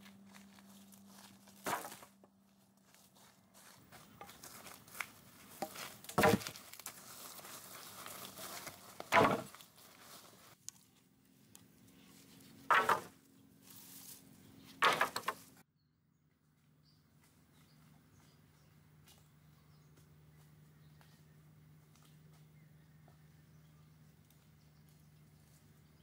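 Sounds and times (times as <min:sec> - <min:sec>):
faint rustling: 0:00.0 - 0:12.7
tool chopping into wood: 0:01.6 - 0:02.1, 0:05.6 - 0:06.6, 0:09.1 - 0:09.5, 0:12.7 - 0:13.2, 0:14.8 - 0:15.5.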